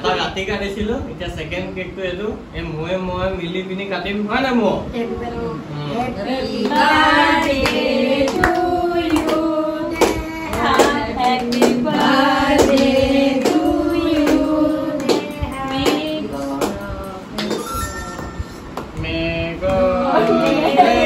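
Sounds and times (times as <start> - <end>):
group singing a birthday song: 5.8 - 17.6, 18.4 - 21.0
people clapping in time: 6.6 - 19.0.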